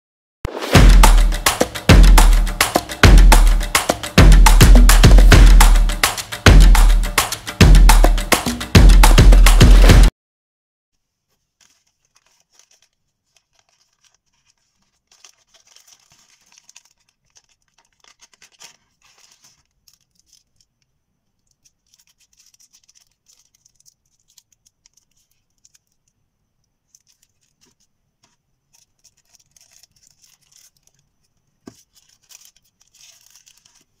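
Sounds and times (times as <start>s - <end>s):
plastic sleeve crinkling: 11.2s - 34.0s.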